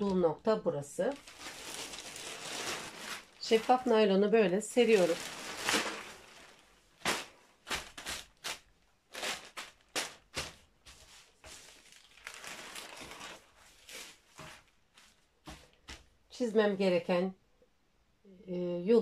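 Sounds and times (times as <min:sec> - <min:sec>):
plastic sheeting crinkling: 0:01.0 - 0:15.7.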